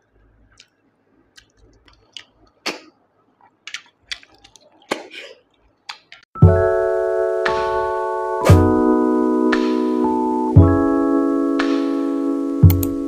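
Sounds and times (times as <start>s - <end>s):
mouth slurping snails: 0.4s - 6.2s
keyboard music with chords: 6.4s - 13.0s.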